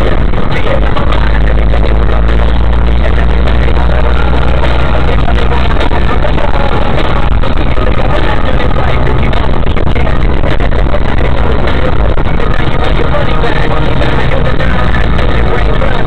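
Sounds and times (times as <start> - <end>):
car engine and road rumble: 0.0 - 16.0
distorted music: 0.0 - 16.0.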